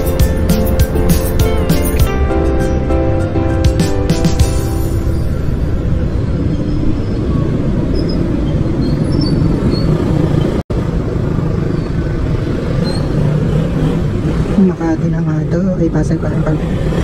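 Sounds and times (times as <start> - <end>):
wind noise: 4.9 - 14.6.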